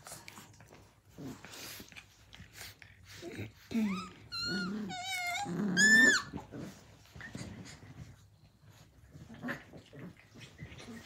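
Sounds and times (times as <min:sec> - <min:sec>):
puppies whining and yelping: 0:02.8 - 0:11.0.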